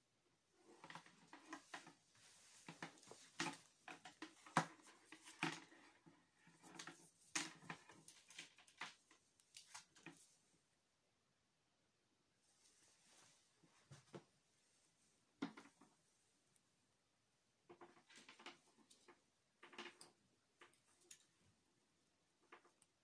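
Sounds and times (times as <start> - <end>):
cables moved on wooden table: 0.7 - 10.2.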